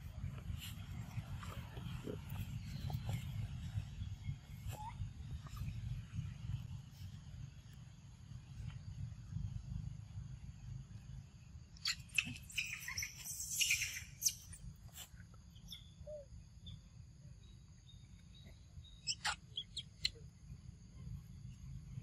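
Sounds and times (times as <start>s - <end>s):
steady low rumble: 0.0s - 11.8s
animal squeaks and chirps: 11.8s - 14.6s, 19.0s - 20.2s.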